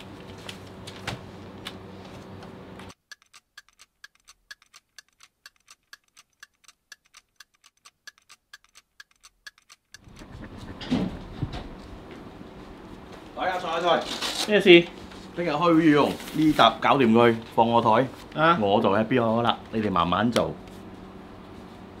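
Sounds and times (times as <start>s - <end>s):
room background hum: 0.0s - 6.4s, 9.5s - 22.0s
wall clock ticking: 2.9s - 10.8s.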